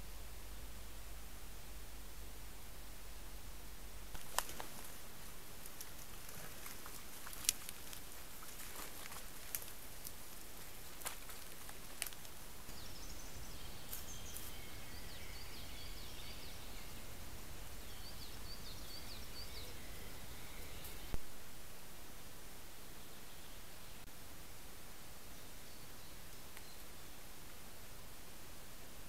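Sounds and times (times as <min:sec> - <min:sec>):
steady hiss: 0:00.0 - 0:29.0
small bird chirping: 0:04.2 - 0:21.2.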